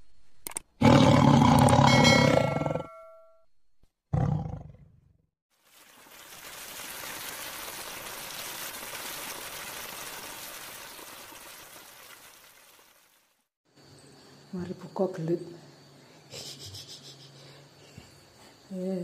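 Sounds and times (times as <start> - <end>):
waterfall pouring into pool: 5.5 - 13.5.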